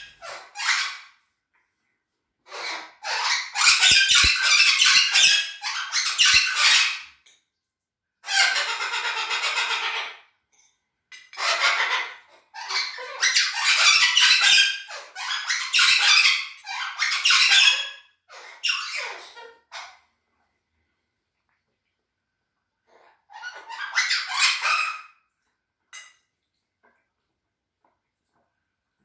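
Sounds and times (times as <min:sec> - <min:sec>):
parrots squawking: 0:00.0 - 0:01.2, 0:02.4 - 0:07.2, 0:08.2 - 0:10.3, 0:11.2 - 0:20.1, 0:22.9 - 0:25.2.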